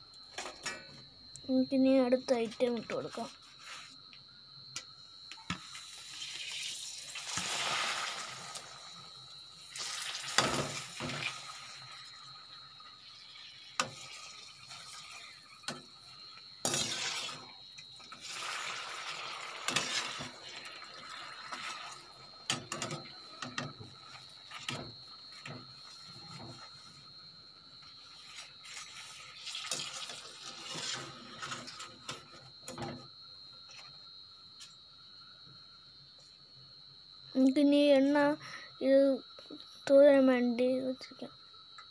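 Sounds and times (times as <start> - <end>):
food sizzling in hot oil: 5.4 - 33.1.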